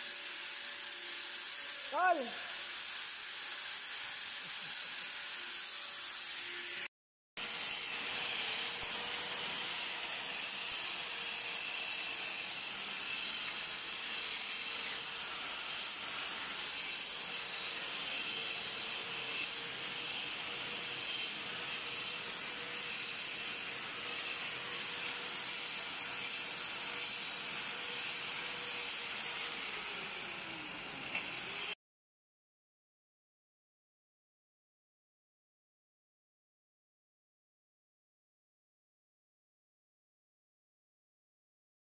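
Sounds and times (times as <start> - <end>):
angle grinder whining: 0.8 - 31.8.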